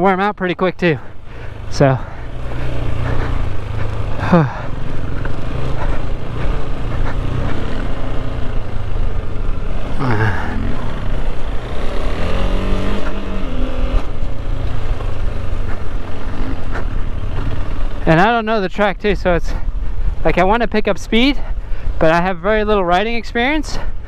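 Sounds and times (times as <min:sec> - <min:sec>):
tyre noise: 0:00.9 - 0:21.6
motorcycle engine under load: 0:01.0 - 0:18.8.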